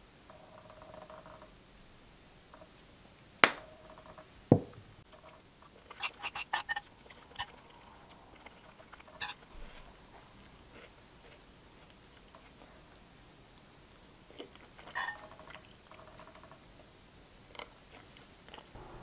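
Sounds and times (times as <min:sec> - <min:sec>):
soft thump: 0:04.5 - 0:04.9
metal spoon scraping ceramic plate: 0:05.9 - 0:07.6, 0:09.2 - 0:09.4.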